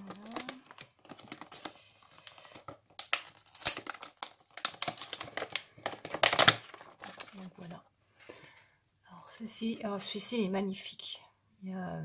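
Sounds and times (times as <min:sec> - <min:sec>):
tape box rustling and crinkling: 0:00.0 - 0:07.8.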